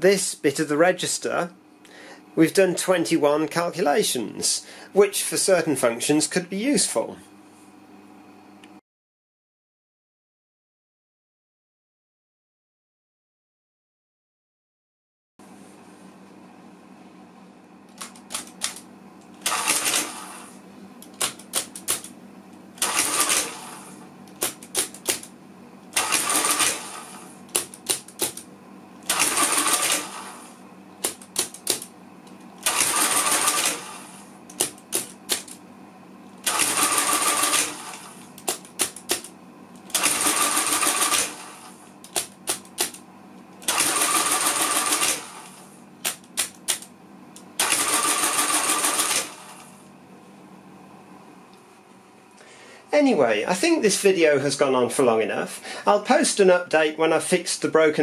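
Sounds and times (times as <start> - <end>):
calculator motor whirring clatter: 17.9 - 22.2, 22.8 - 25.3, 25.9 - 35.6, 36.4 - 43.0, 43.6 - 49.8.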